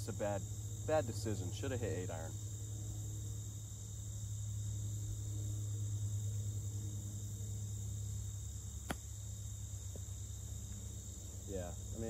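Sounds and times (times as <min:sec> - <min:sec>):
low hum: 0:00.0 - 0:11.9
crickets chirring: 0:00.0 - 0:12.0
golf club striking ball: 0:08.8 - 0:09.2.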